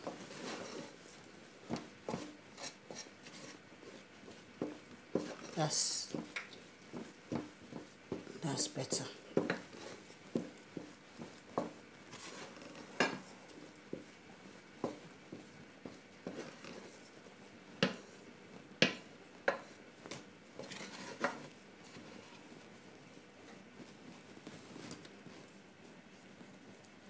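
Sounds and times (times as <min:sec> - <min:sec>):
wooden spatula knocking on steel pot: 0:18.8 - 0:19.6.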